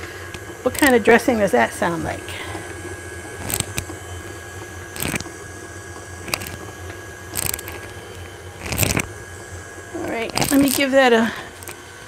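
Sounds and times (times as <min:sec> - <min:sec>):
stand mixer humming: 0:00.0 - 0:12.0
sharp clicks and knocks: 0:00.3 - 0:01.1, 0:03.3 - 0:04.0, 0:04.9 - 0:05.4, 0:06.0 - 0:09.1.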